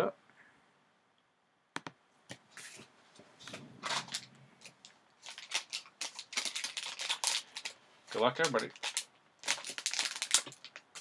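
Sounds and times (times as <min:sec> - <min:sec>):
foil card pack crinkling: 0:03.8 - 0:11.0.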